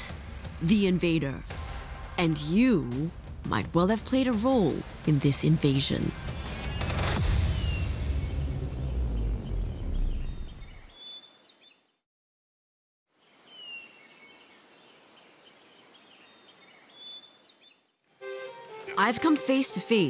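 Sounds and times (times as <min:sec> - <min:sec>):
birds chirping and whistling: 0:06.3 - 0:11.8
deep low rumble: 0:07.2 - 0:10.8.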